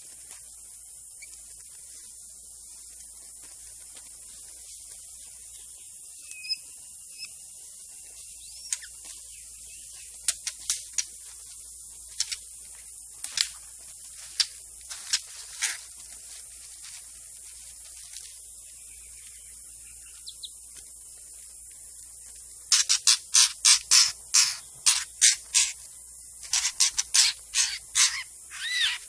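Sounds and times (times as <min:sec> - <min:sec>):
insect hiss: 0:00.0 - 0:29.0
bird whistles: 0:06.2 - 0:07.3
sharp snaps and clicks: 0:08.6 - 0:09.1, 0:10.2 - 0:11.2, 0:12.1 - 0:13.6.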